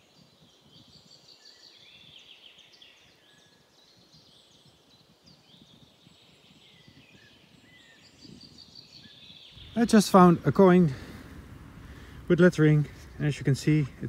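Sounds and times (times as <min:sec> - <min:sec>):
small birds chirping: 0:00.0 - 0:14.0
wind rumble: 0:05.5 - 0:14.0.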